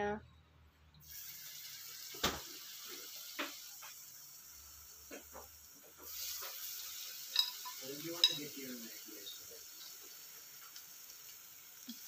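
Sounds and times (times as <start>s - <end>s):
batter sizzling in hot oil: 1.0s - 12.0s.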